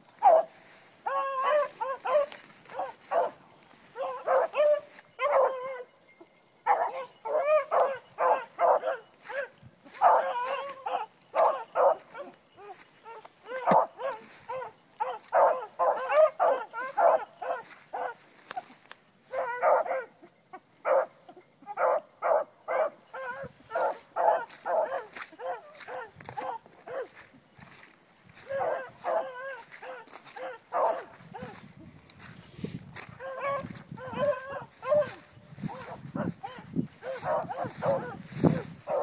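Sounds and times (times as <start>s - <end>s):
dogs baying: 0.0s - 6.0s, 6.6s - 39.0s.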